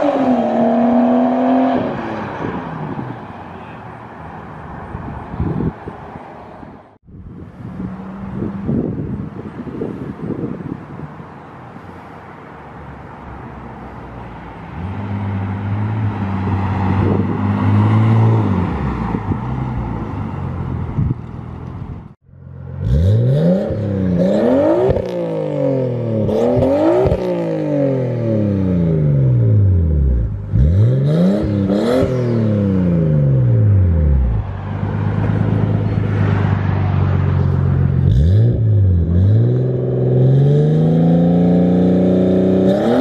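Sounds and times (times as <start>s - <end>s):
car engine revving: 22.5s - 43.0s.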